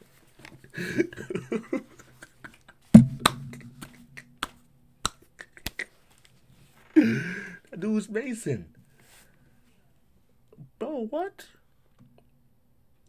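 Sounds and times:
man laughing: 0:00.7 - 0:02.9, 0:05.3 - 0:06.0, 0:07.0 - 0:07.6
hand claps and slaps: 0:03.0 - 0:05.9.

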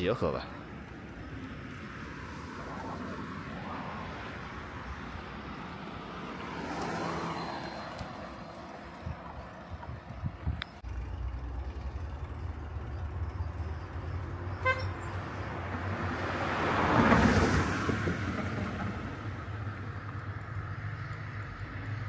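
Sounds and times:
vehicle passing close by: 0:01.5 - 0:09.9, 0:10.8 - 0:22.0
short horn toot: 0:14.6 - 0:15.0.

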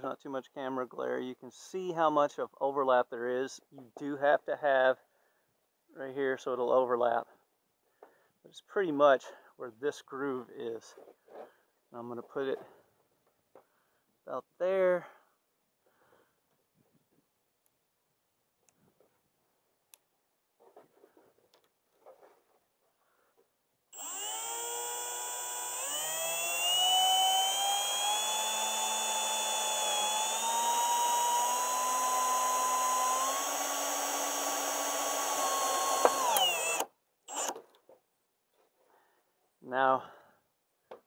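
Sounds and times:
cordless drill motor whine: 0:24.0 - 0:37.6.

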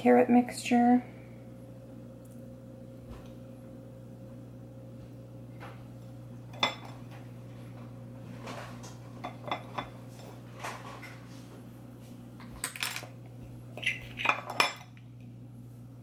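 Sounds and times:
utensil clinking on dishware: 0:06.5 - 0:07.0, 0:09.2 - 0:10.3, 0:13.8 - 0:15.0.

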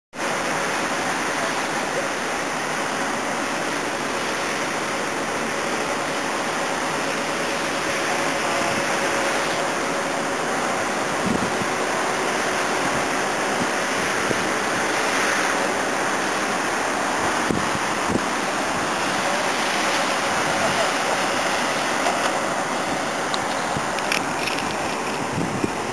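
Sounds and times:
distant road traffic: 0:00.2 - 0:25.9
wind across microphone: 0:10.9 - 0:15.2, 0:17.2 - 0:19.1, 0:22.8 - 0:25.9.

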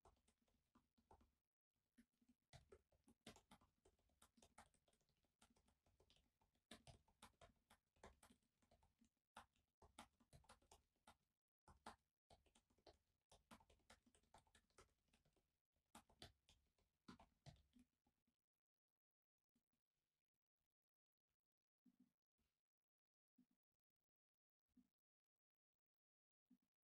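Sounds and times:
typing on laptop keyboard: 0:00.0 - 0:01.3, 0:02.0 - 0:17.8.

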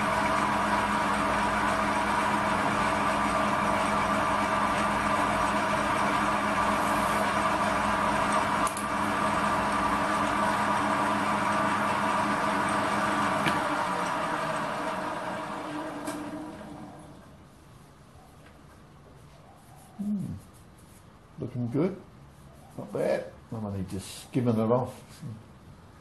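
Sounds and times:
lathe motor hum and whine: 0:00.0 - 0:17.2.

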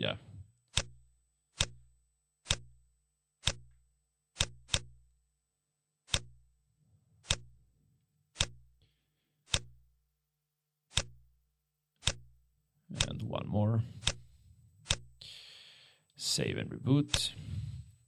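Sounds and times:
computer mouse clicking: 0:00.7 - 0:02.8, 0:03.4 - 0:03.8, 0:04.4 - 0:05.0, 0:06.1 - 0:06.4, 0:07.2 - 0:07.6, 0:08.4 - 0:08.7, 0:09.5 - 0:09.8, 0:10.9 - 0:11.3, 0:12.0 - 0:13.3, 0:13.9 - 0:15.2.

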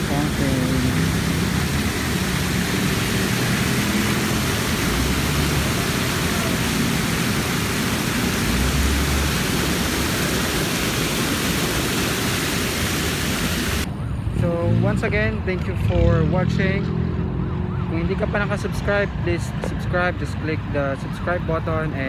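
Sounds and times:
fountain water splashing: 0:00.0 - 0:13.9.

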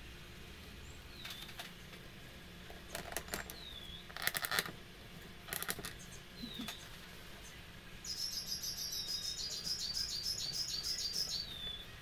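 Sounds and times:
wooden parts clicking and clattering: 0:02.7 - 0:04.8, 0:05.5 - 0:06.0
bird chirping faintly: 0:05.9 - 0:12.0.

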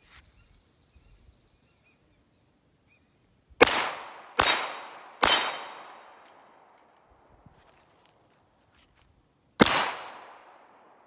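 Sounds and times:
pistol shots: 0:03.6 - 0:06.4, 0:09.6 - 0:11.0.

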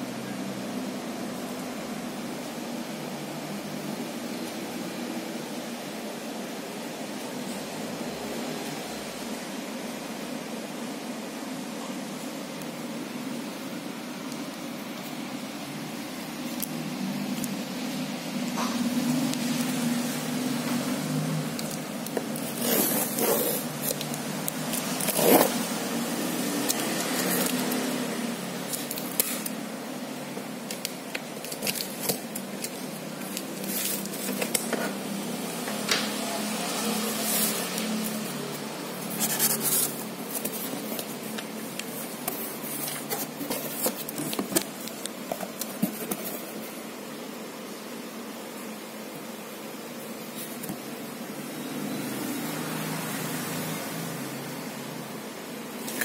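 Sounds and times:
plastic wrapping rustling: 0:18.4 - 0:35.4, 0:36.8 - 0:46.8
cardboard scraping and tearing: 0:21.6 - 0:29.6, 0:30.6 - 0:35.0, 0:37.1 - 0:46.8.

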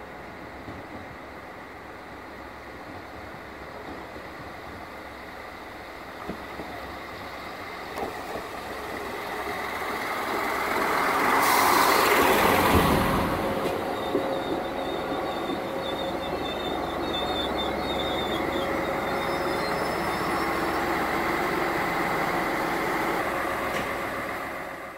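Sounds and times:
diesel railcar engine: 0:00.0 - 0:24.9
train wheels on rails: 0:00.1 - 0:24.9
brief hiss: 0:11.3 - 0:12.2
high brake squeal: 0:11.3 - 0:12.4, 0:13.2 - 0:21.1.

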